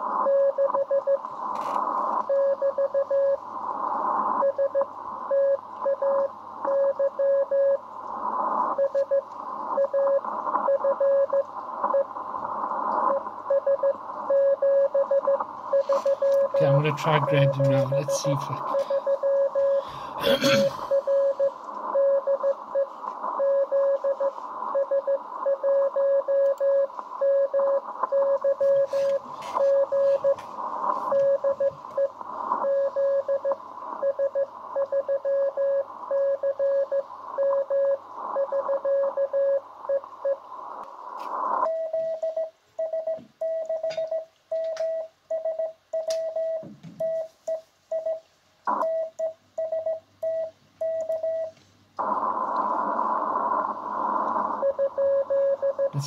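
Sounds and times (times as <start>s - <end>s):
morse code beeps: 0.2s - 1.2s, 2.3s - 3.4s, 4.4s - 7.8s, 8.7s - 9.2s, 9.8s - 12.1s, 13.1s - 30.4s, 31.0s - 40.4s, 41.6s - 51.6s, 54.6s - 56.0s
radio static: 1.0s - 5.3s, 7.4s - 41.7s, 52.0s - 56.0s
clean keyed tone: 15.8s - 19.8s.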